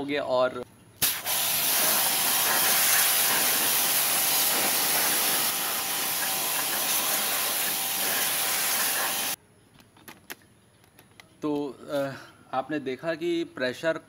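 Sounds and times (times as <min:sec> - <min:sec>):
pressure washer water jet hissing: 0:01.0 - 0:09.4.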